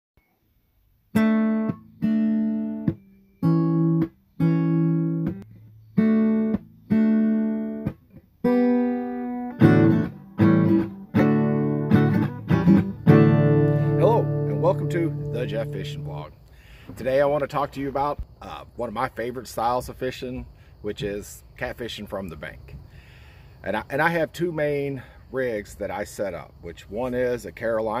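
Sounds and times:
strummed acoustic guitar chords: 1.2 - 16.2.

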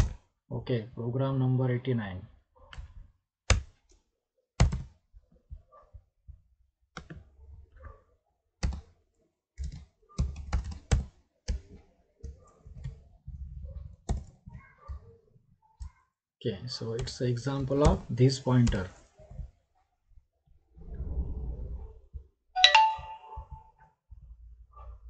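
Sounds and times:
computer keyboard typing: 8.6 - 8.9, 9.6 - 13.0.

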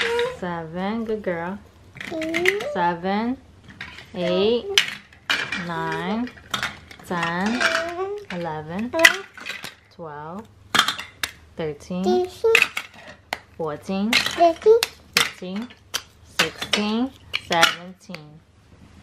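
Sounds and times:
plastic toys clattering into basket: 2.0 - 2.8, 3.7 - 9.9, 12.4 - 13.3, 14.1 - 17.8
person counting aloud: 12.0 - 12.6.

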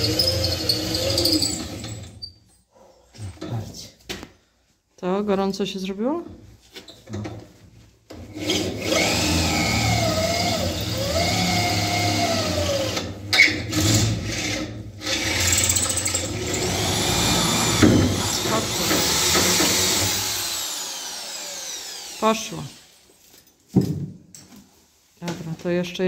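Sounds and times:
drill bit grinding and squealing: 0.0 - 2.1, 15.1 - 22.8
cordless drill motor under load: 8.4 - 13.1, 15.1 - 23.0.

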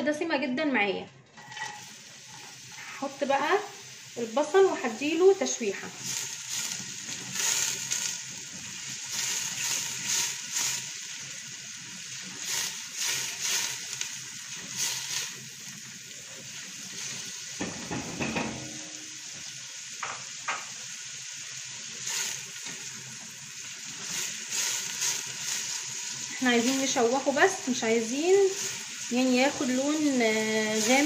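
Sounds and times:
onions sizzling in oil: 1.4 - 31.0.

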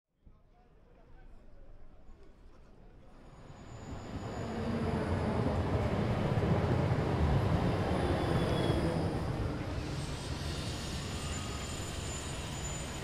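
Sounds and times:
tram rolling rumble: 3.2 - 13.0
faint high-pitched squeals: 7.6 - 13.0.

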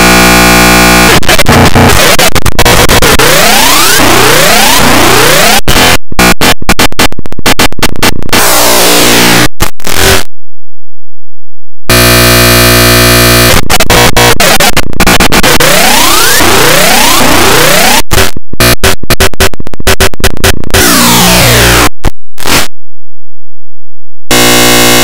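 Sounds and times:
distorted electronic noise: 0.0 - 10.3, 11.9 - 22.8, 24.3 - 25.0
steady buzzing tone: 0.0 - 10.3, 11.9 - 22.7, 24.3 - 25.0.

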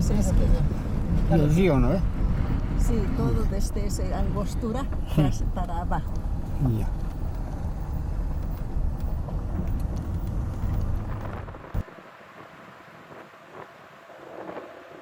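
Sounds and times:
faint wind: 0.0 - 15.0
wind buffeting microphone: 0.0 - 15.0.

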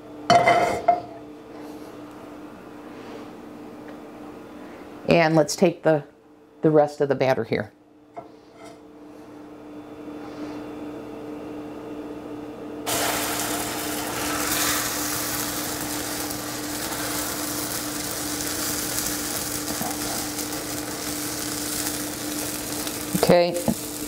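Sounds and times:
steady low hum: 0.0 - 24.0
batter sizzling in frying pan: 12.9 - 24.0.

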